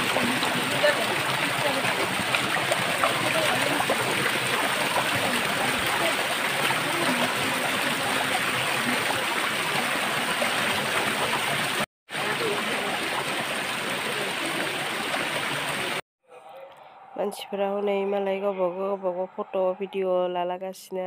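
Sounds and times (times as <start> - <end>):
waterfall splashing over rocks: 0.0 - 16.0.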